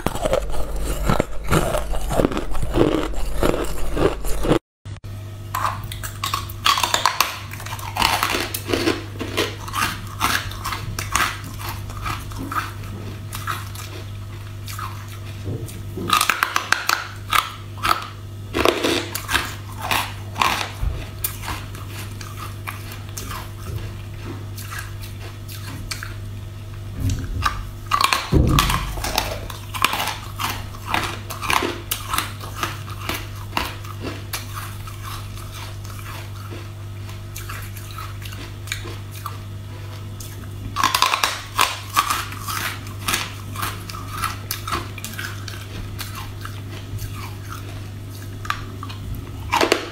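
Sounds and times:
crunching and chewing ice: 0.0s - 4.6s, 5.5s - 26.4s, 27.1s - 49.9s
steady low hum: 0.0s - 49.9s.

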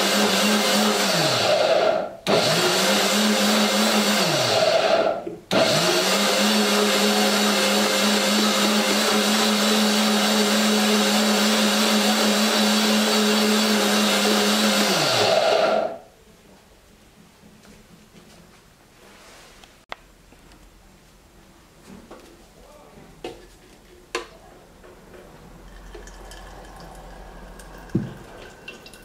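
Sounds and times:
blender motor running: 0.0s - 16.0s.

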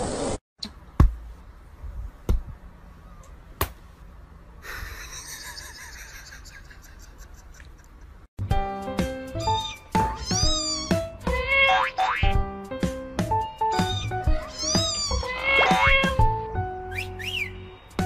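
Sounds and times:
music: 8.4s - 18.0s.

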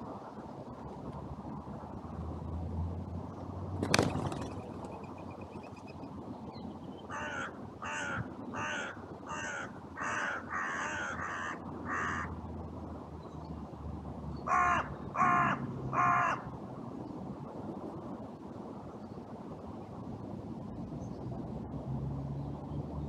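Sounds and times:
crow cawing: 7.1s - 12.4s, 14.5s - 16.5s.

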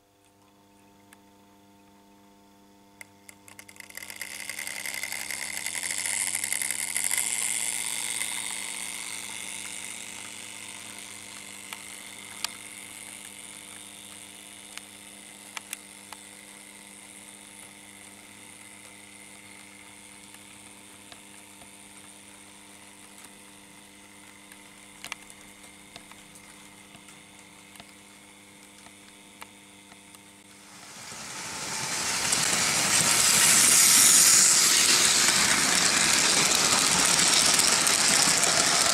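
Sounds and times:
steady electric hum: 0.0s - 38.9s
model train rattling: 30.6s - 38.9s
wheels clicking over rail joints: 30.9s - 38.9s.

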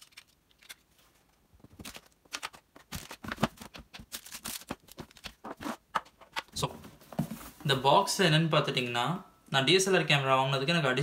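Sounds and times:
gear and packaging rustling: 0.0s - 7.7s.

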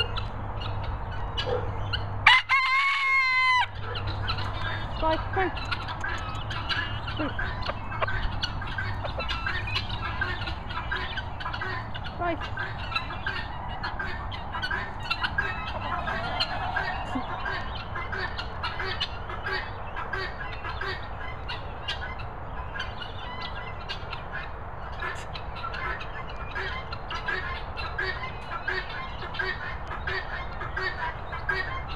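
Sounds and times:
guineafowl squawking and chirping: 0.0s - 31.9s
steady low rumble: 3.7s - 21.4s.

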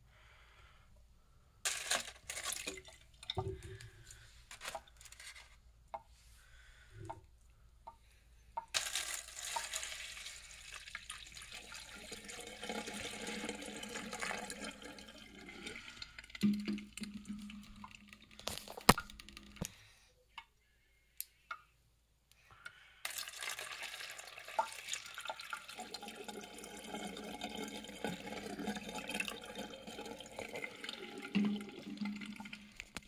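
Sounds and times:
water pouring into foil bowl: 1.7s - 5.6s, 8.7s - 19.7s, 23.0s - 33.0s.

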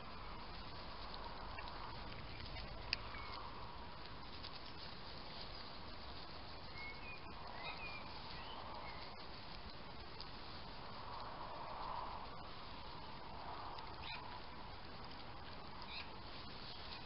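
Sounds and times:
outdoor background hiss: 0.0s - 17.0s.

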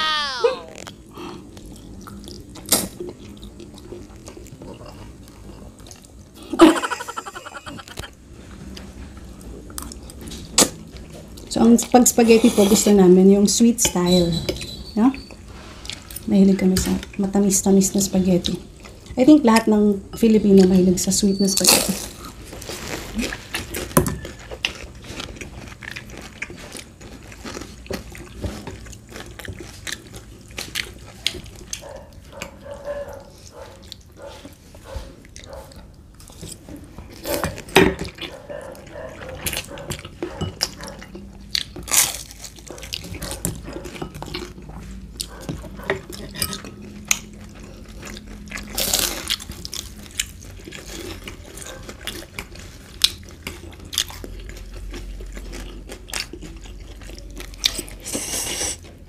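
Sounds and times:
spaghetti slurping and chewing: 21.8s - 59.0s
crisp spring rolls bitten: 47.0s - 59.0s.

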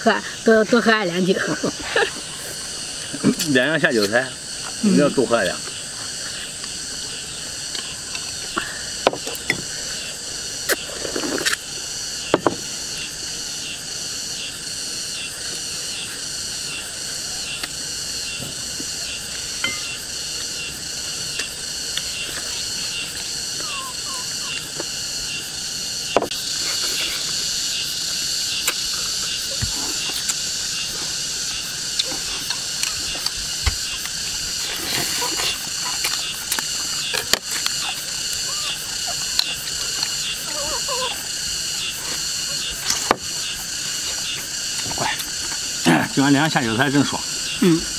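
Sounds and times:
insects chirping: 0.0s - 47.9s
chewing: 31.9s - 41.3s.

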